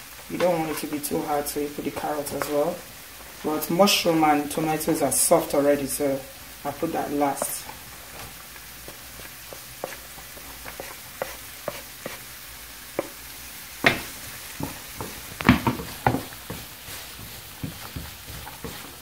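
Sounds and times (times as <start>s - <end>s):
vegetables sizzling in oil: 0.0s - 19.0s
wooden spatula scraping a pan: 0.2s - 3.6s, 6.7s - 13.2s, 13.9s - 19.0s.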